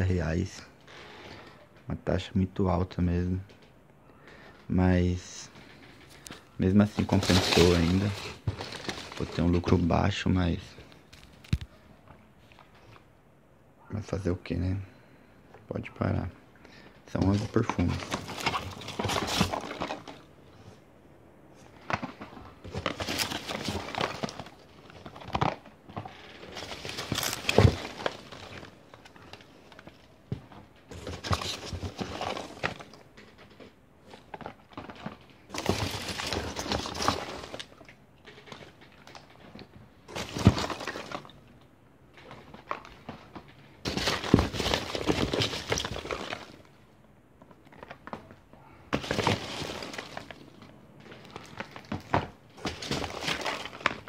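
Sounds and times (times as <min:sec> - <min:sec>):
packing peanuts rustling: 0:05.2 - 0:11.7, 0:16.0 - 0:20.8, 0:21.6 - 0:41.6, 0:42.2 - 0:54.0.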